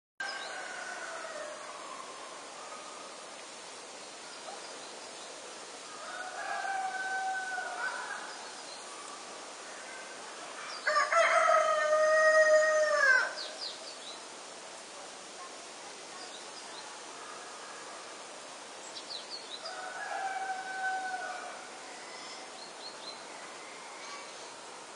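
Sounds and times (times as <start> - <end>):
rooster crowing: 0.2 - 2.1, 6.0 - 8.2, 10.8 - 13.4, 19.6 - 21.7.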